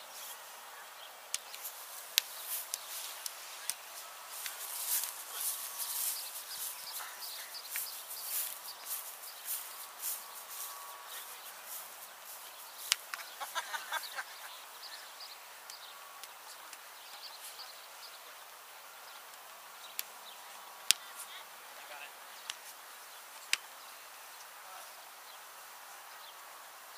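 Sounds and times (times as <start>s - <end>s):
steady high hiss: 0.0s - 26.9s
rapid bird-like chirps: 0.1s - 25.4s.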